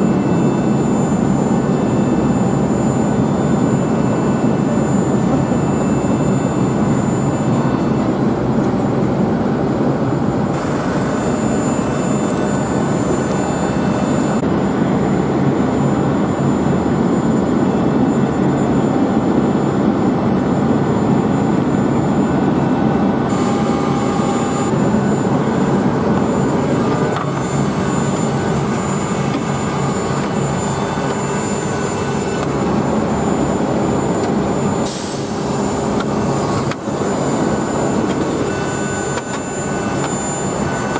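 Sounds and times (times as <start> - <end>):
jet engine rumble and whine: 0.0 - 40.9.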